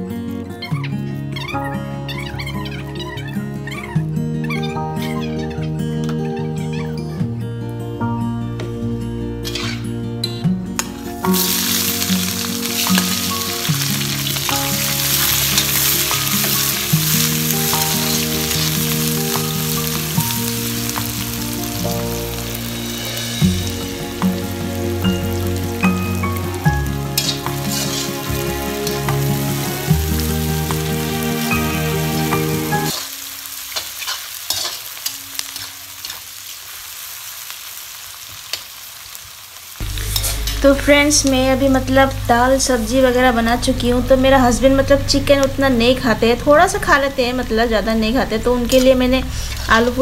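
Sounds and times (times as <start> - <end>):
background music: 0.0 - 33.5, 39.8 - 50.0
vegetables sizzling in hot oil: 9.4 - 9.9, 10.8 - 50.0
metal spatula scraping pan: 9.4 - 10.0, 27.1 - 29.5, 33.7 - 36.2, 39.8 - 40.9
metal spoon stirring in wok: 11.3 - 21.0, 27.1 - 29.2, 32.9 - 36.6, 39.8 - 40.7.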